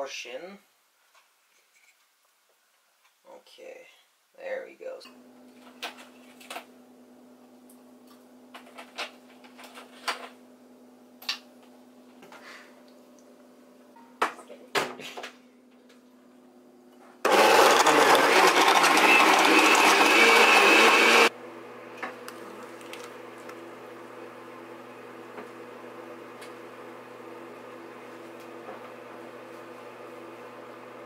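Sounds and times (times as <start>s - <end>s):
blender running: 17.2s - 31.0s.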